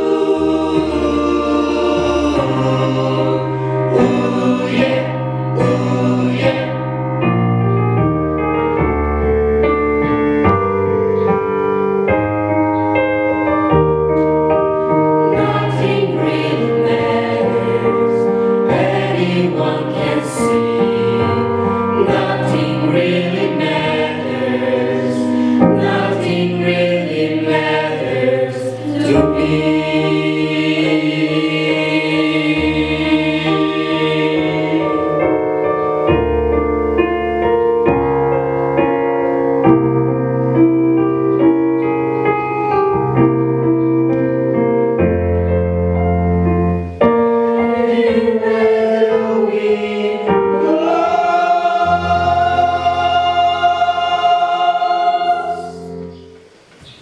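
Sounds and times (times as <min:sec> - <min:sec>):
mixed choir singing in harmony: 0:00.0 - 0:08.0, 0:14.9 - 0:36.4, 0:47.4 - 0:57.0.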